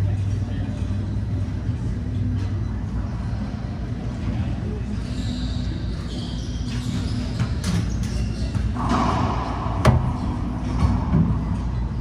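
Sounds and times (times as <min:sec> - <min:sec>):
sneaker squeaks: 0:04.9 - 0:09.1.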